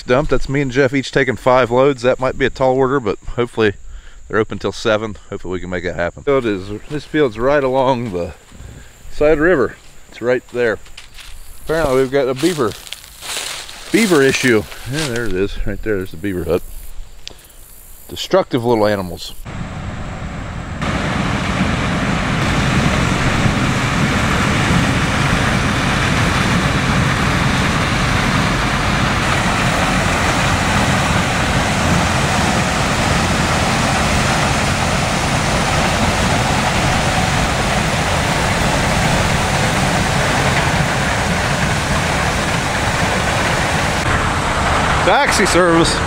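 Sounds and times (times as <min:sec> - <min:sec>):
combine harvester running: 0:10.4 - 0:16.2, 0:19.5 - 0:46.0.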